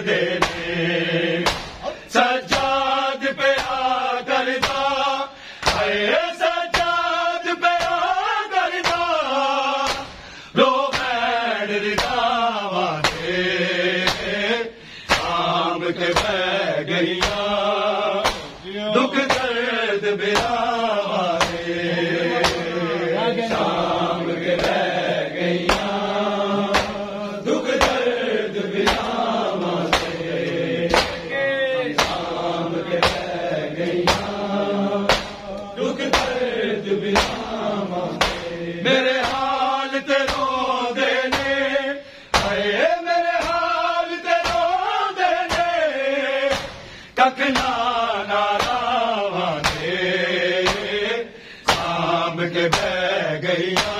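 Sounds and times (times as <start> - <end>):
men chanting a lament: 0.0 - 53.9
hand slaps on chests: 0.4 - 0.8, 1.4 - 2.9, 3.5 - 4.0, 4.6 - 5.0, 5.6 - 6.0, 6.7 - 7.0, 7.7 - 8.0, 8.8 - 10.2, 10.9 - 11.3, 12.0 - 12.4, 13.0 - 13.4, 14.0 - 14.4, 15.0 - 17.6, 18.2 - 19.6, 20.3 - 21.7, 22.3 - 22.7, 23.4 - 40.6, 41.2 - 41.7, 42.3 - 42.7, 43.4 - 43.7, 44.3 - 44.8, 45.4 - 45.8, 46.5 - 46.9, 47.5 - 47.9, 48.5 - 49.0, 49.6 - 50.0, 50.6 - 52.1, 52.7 - 53.0, 53.6 - 53.9.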